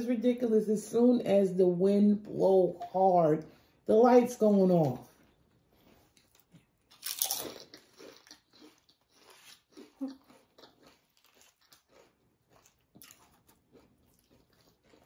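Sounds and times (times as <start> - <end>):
potato chips crunching: 6.1 - 15.0.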